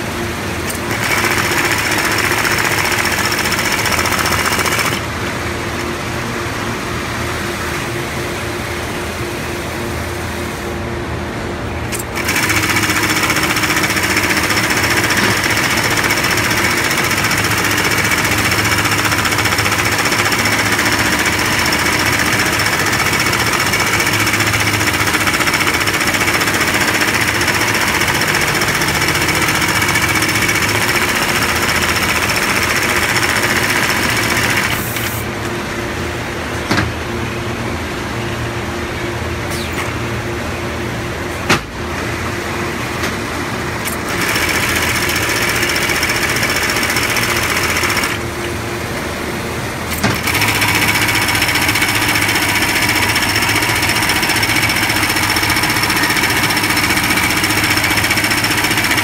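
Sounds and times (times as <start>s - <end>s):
machine hum: 0.0s - 59.0s
sewing machine rattling: 0.7s - 5.1s, 11.9s - 35.0s, 43.9s - 48.2s, 50.1s - 59.0s.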